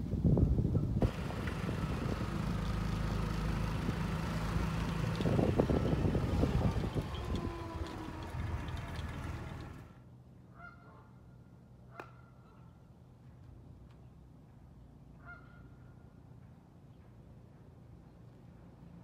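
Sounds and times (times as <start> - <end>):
loud rumbling noise: 1.0 - 10.0.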